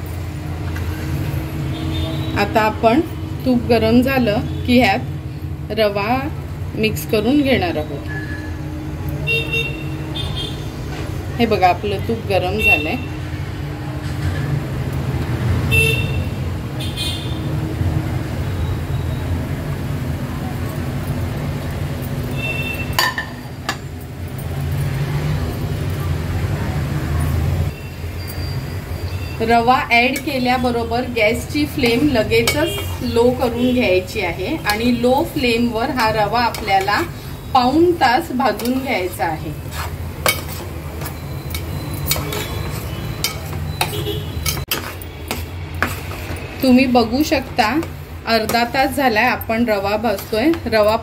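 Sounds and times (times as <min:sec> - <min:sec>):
metal spatula scraping a pan: 0:30.0 - 0:48.8.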